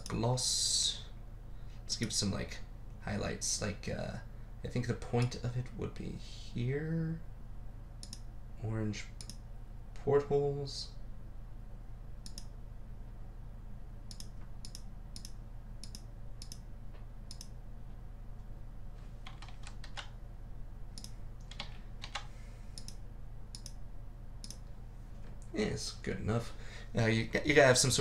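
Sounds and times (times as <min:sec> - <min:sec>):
low electrical hum: 0:00.0 - 0:28.0
computer mouse clicking: 0:08.0 - 0:08.2, 0:09.2 - 0:09.4, 0:12.2 - 0:12.5, 0:14.1 - 0:16.6, 0:17.3 - 0:17.6, 0:21.0 - 0:23.8, 0:24.4 - 0:24.6.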